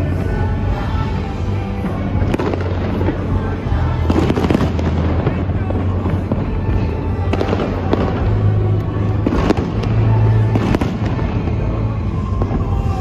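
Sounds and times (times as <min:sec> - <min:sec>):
fireworks bangs and crackles: 0:00.0 - 0:13.0
loud show music with bass: 0:00.0 - 0:13.0.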